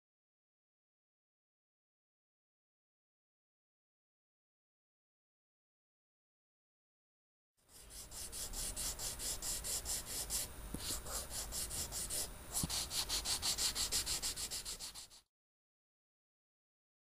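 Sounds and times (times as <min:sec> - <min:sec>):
paintbrush strokes on canvas: 0:07.7 - 0:15.2.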